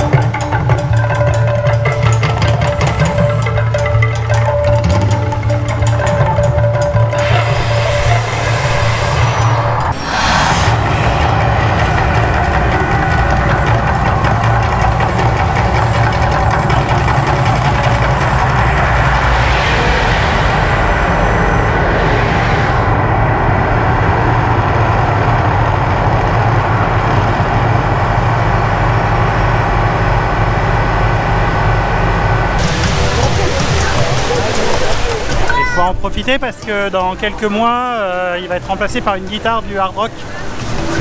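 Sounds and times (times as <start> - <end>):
low rumble: 6.7 - 35.4
hissing surges: 7.1 - 14.7.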